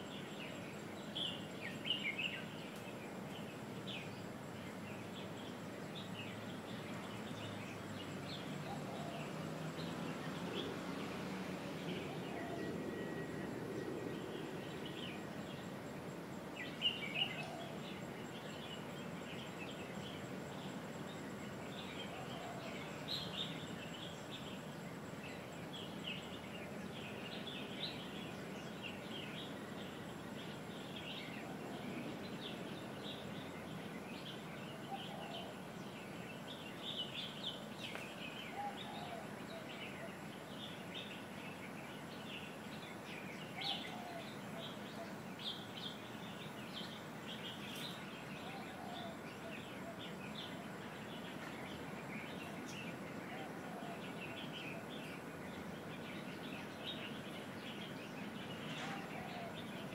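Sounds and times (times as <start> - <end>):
outdoor background noise: 0.0 - 59.9
small birds chirping: 0.0 - 59.9.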